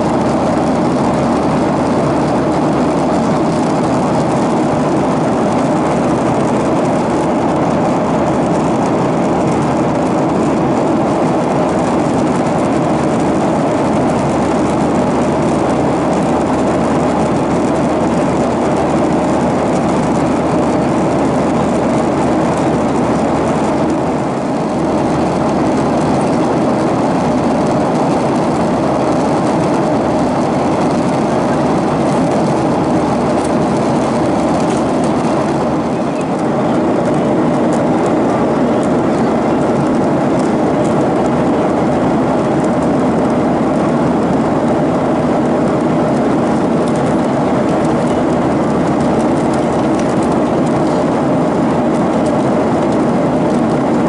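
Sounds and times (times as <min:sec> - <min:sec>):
jet airliner cabin noise: 0:00.0 - 0:54.0.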